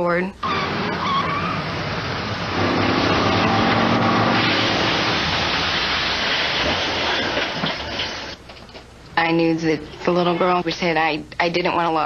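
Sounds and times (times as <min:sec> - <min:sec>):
truck engine revving hard: 0:00.4 - 0:07.2
loud continuous noisy rush: 0:00.4 - 0:08.4.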